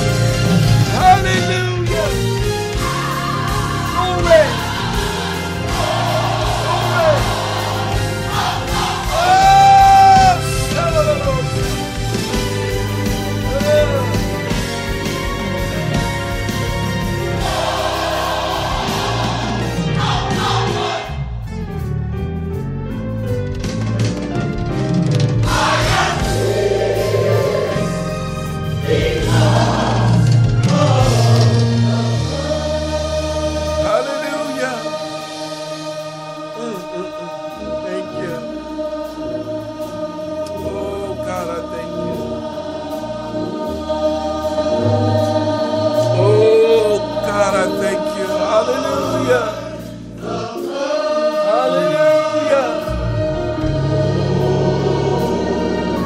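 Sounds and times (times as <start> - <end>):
choir singing gospel: 0.0 - 21.8, 25.3 - 56.0
bass notes: 0.0 - 33.9, 52.3 - 56.0.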